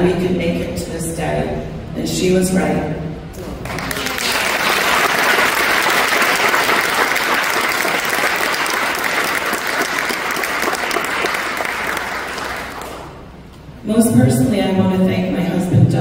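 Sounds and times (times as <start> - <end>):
audience applauding: 3.6 - 13.2.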